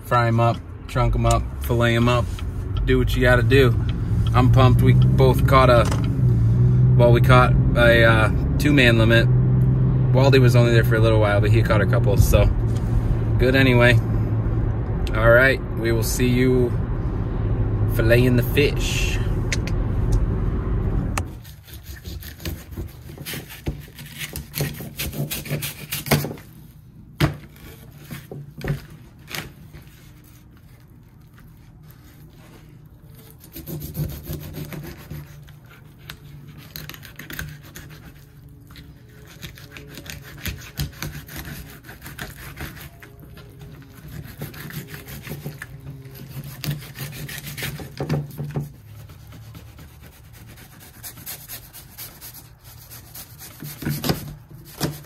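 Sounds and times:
low steady hum: 0.0s - 21.5s
knife scraping and sawing fish: 21.3s - 26.6s, 27.5s - 55.0s.

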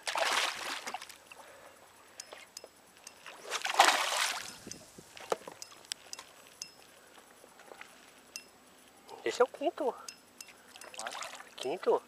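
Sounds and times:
water splashing against boat hull: 0.0s - 1.2s, 3.2s - 5.5s, 10.8s - 11.8s.

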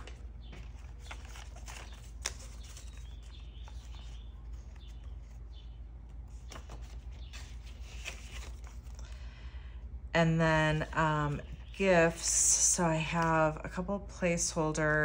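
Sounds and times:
banknotes rustling: 0.0s - 9.4s
steady low hum: 0.0s - 15.0s.

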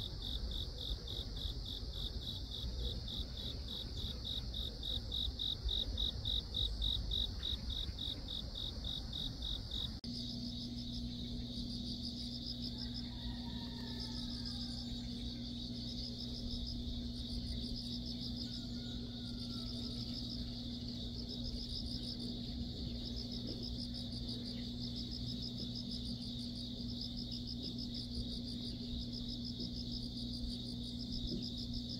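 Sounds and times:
low hum: 0.0s - 31.8s
insect pulsed trills: 0.0s - 31.9s
insects trilling: 0.0s - 31.9s.

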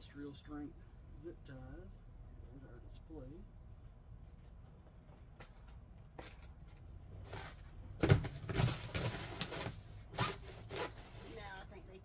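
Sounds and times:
packaging rustling and scraping: 6.2s - 11.5s.

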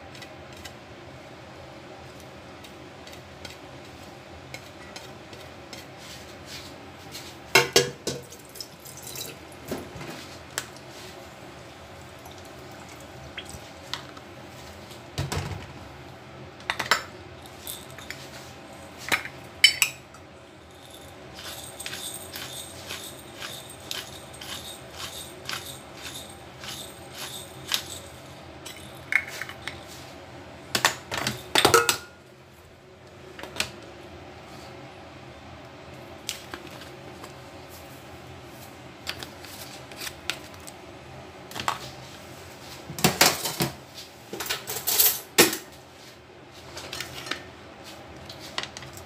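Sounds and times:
metal shaker clinking on bowl: 17.4s - 18.4s, 20.6s - 30.0s
shaker rattling: 17.4s - 19.4s, 20.5s - 30.1s.

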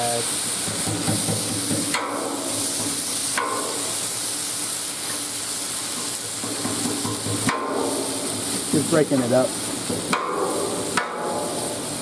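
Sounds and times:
food sizzling on a griddle: 0.0s - 12.0s
metal spatula clacking on steel: 0.6s - 3.9s, 5.9s - 8.1s, 9.9s - 11.6s.

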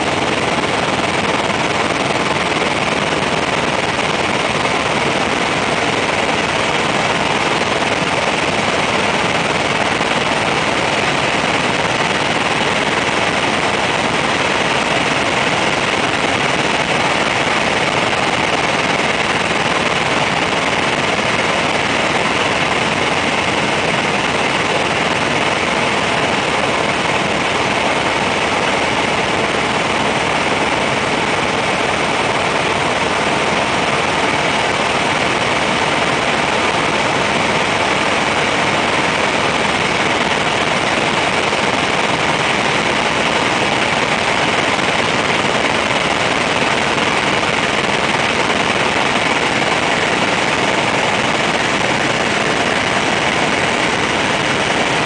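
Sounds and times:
helicopter engine and rotor noise: 0.0s - 55.0s.

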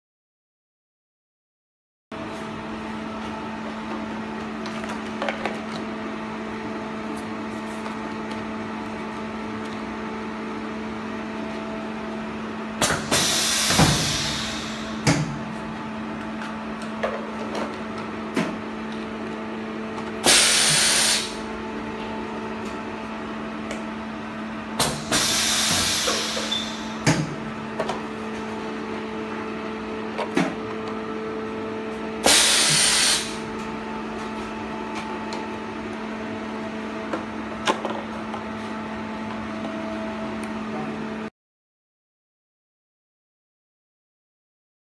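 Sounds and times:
compressed air hiss: 12.8s - 15.0s, 20.2s - 21.4s, 24.8s - 27.0s, 32.2s - 33.4s.

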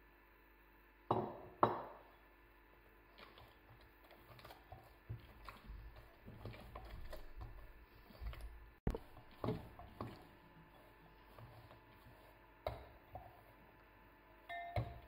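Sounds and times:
dough squishing: 3.0s - 13.9s.

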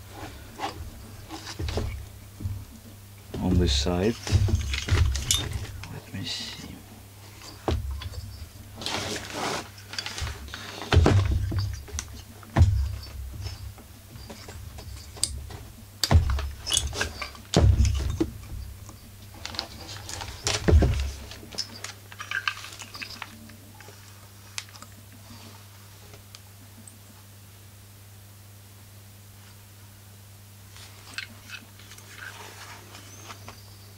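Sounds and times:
low steady hum: 0.0s - 33.9s
clicks and rattles of handling: 0.6s - 6.0s, 7.4s - 25.0s.

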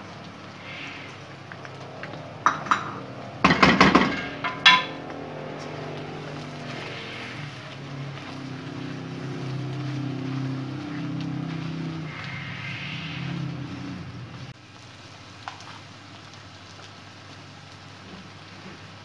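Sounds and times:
oil sizzling in a wok: 0.0s - 19.0s
spatula clattering against pan: 2.4s - 5.2s.

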